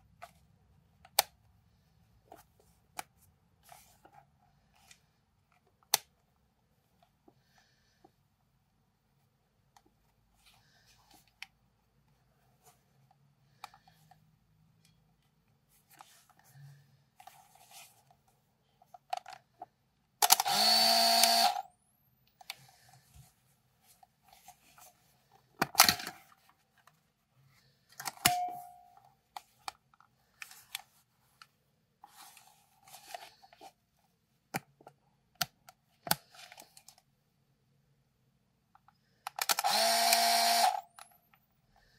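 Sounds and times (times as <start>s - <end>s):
camera motor whirring: 20.2s - 21.7s, 39.5s - 40.9s.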